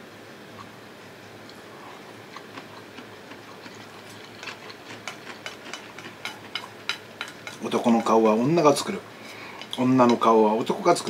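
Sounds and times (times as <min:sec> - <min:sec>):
utensils clicking against a bowl: 0:03.3 - 0:09.0, 0:09.6 - 0:11.0.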